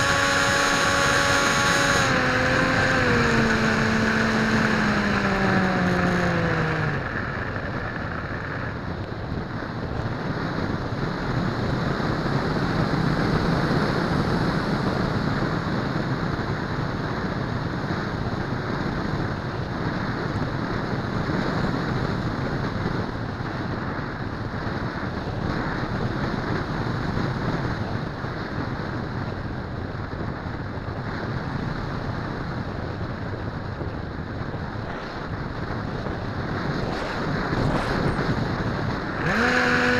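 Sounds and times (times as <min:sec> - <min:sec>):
electric motor whining: 0:00.0 - 0:08.8, 0:36.7 - 0:39.9
wind noise on microphone: 0:00.0 - 0:39.9.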